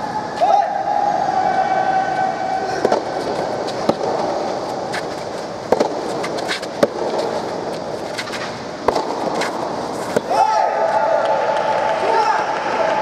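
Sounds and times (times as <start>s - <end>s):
steady background hum: 0.0s - 13.0s
rackets hitting soft ball: 2.8s - 11.3s.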